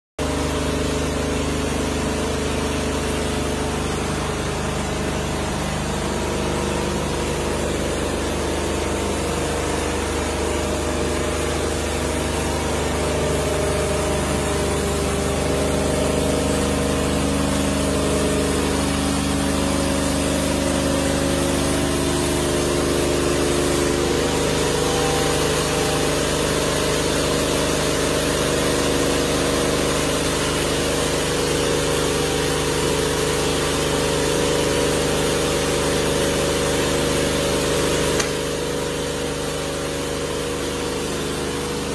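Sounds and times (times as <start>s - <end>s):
diesel engine running: 0.2s - 41.9s
band saw blade cutting log: 14.0s - 29.0s, 37.9s - 38.5s.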